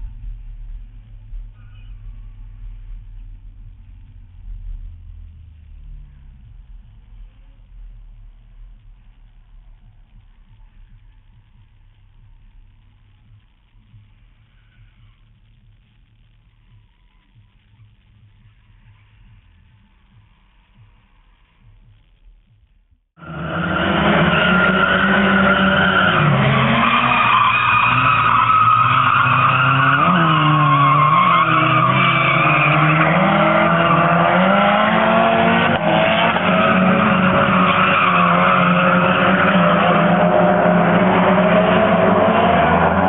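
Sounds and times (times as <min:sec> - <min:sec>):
tire squeal: 0:01.5 - 0:02.8, 0:23.2 - 0:43.0
car engines revving: 0:23.2 - 0:43.0.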